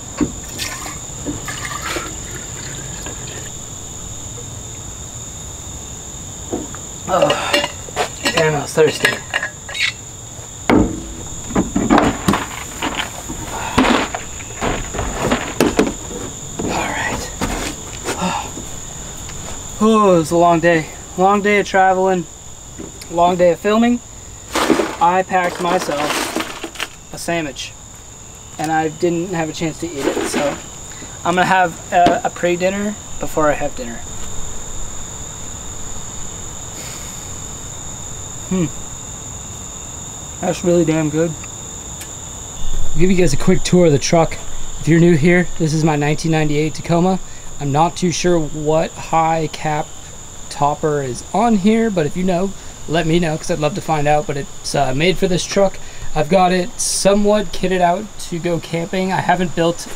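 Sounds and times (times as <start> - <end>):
high insect trill: 0.0 - 59.9
knocks and thuds in truck bed: 0.1 - 0.5, 6.5 - 6.8, 10.6 - 18.8, 32.0 - 32.3
man murmuring while eating: 7.1 - 7.7, 18.0 - 18.7, 38.5 - 38.8
plastic cooler scraping: 10.7 - 19.8, 24.4 - 27.3, 29.3 - 32.4.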